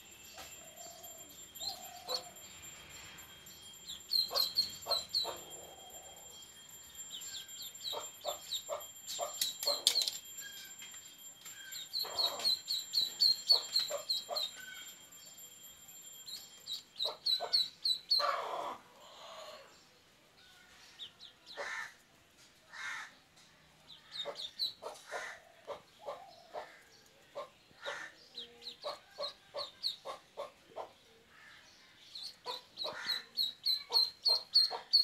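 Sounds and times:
duckling peeping: 4.1s - 5.4s, 12.0s - 14.5s, 17.0s - 18.6s, 32.2s - 35.0s.

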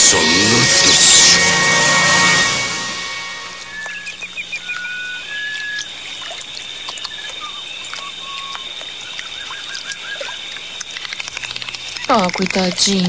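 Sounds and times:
high chirps and whistles: 2.9s - 10.4s
water trickling: 3.5s - 13.0s
sharp clicks: 8.4s - 13.0s.

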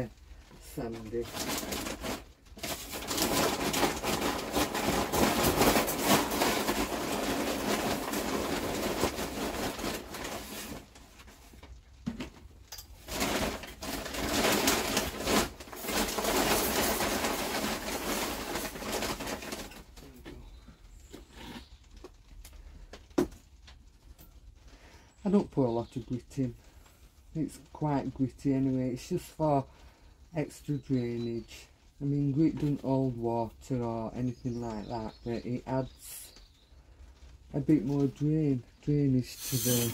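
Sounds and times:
grit rattling through a sieve: 0.0s - 11.6s, 12.9s - 20.2s, 37.5s - 39.9s.

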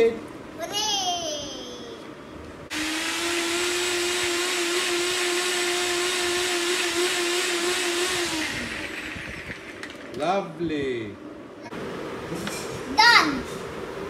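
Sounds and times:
blender motor whining: 2.7s - 10.2s.

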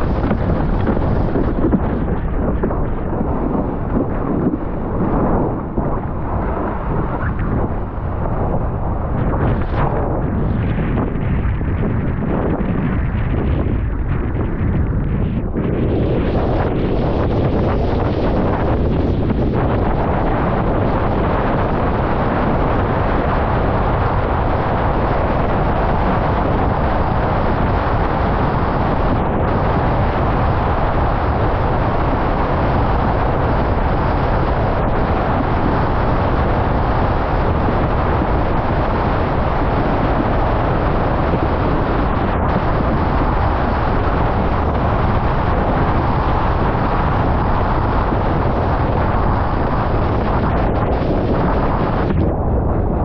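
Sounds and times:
water rushing under board: 0.0s - 12.2s
wind buffeting microphone: 0.0s - 53.0s.

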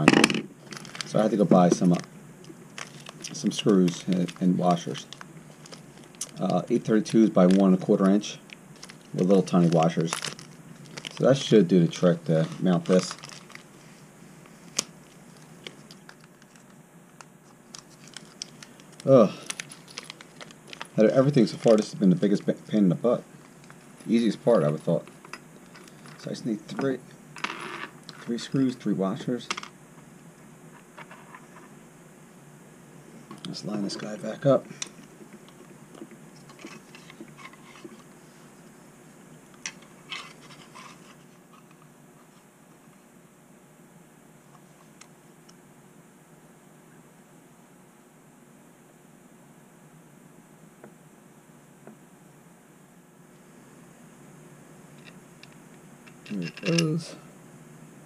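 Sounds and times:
light handling noises: 14.4s - 22.7s.

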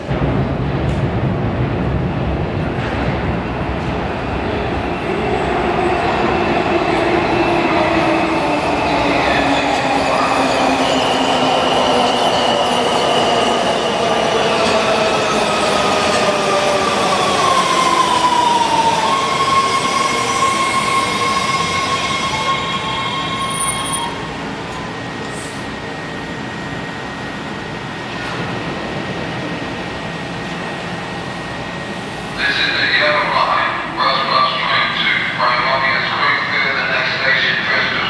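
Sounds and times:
train wheels rumbling on rails: 0.0s - 35.1s
train brake whine: 17.6s - 26.2s.

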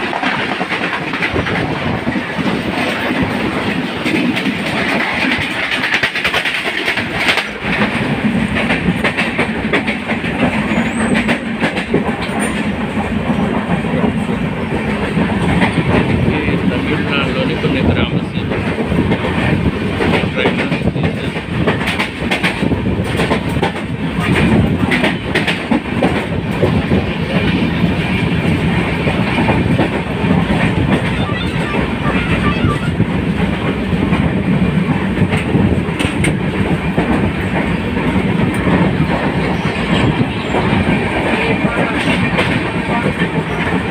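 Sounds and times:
train wheels rumbling on track: 0.0s - 43.9s.

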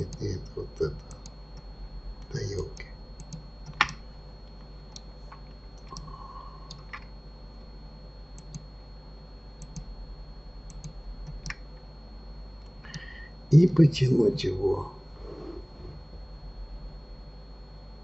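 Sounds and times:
low electrical hum: 0.0s - 18.0s
mouse and keyboard clicks: 3.2s - 4.0s.

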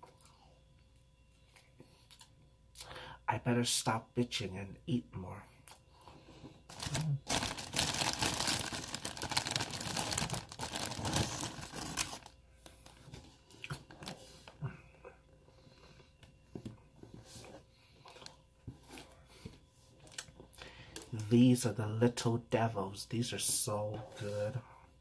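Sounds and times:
plastic packaging crinkling: 6.7s - 14.2s.

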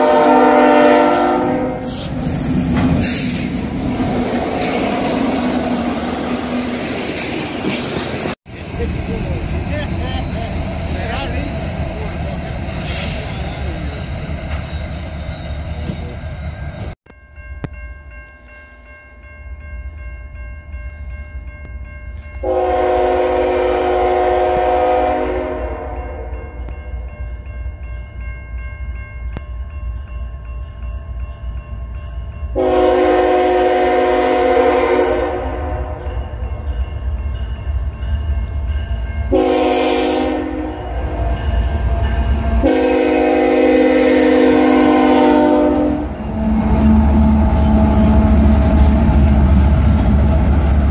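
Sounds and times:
locomotive horn blasts: 0.0s - 2.0s, 22.4s - 26.7s, 32.6s - 36.1s, 39.3s - 41.2s, 42.5s - 48.8s
low rumble of train: 0.0s - 50.9s
railroad crossing bell ringing: 8.9s - 49.3s.

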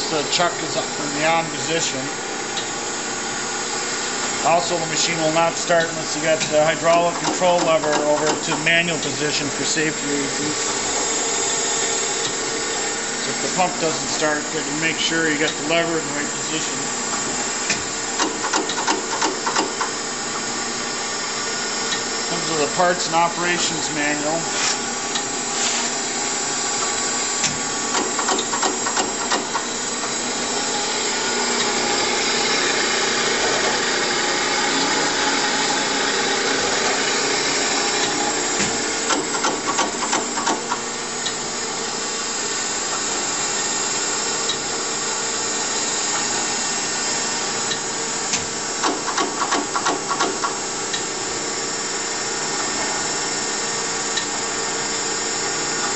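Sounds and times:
surface grinder humming: 29.6s - 39.1s.

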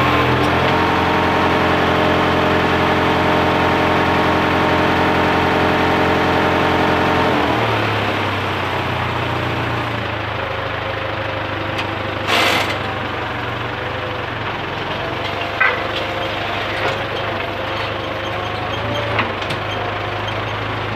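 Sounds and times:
tractor engine running: 0.0s - 20.9s.

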